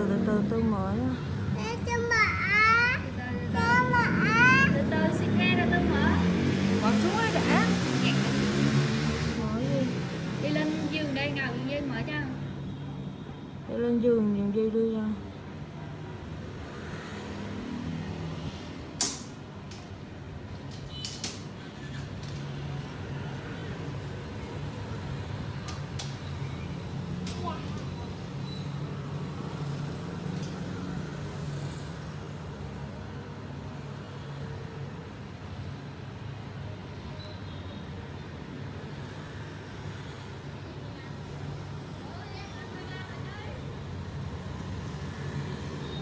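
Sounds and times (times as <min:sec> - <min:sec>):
sharp clicks or knocks: 0:19.0 - 0:19.9.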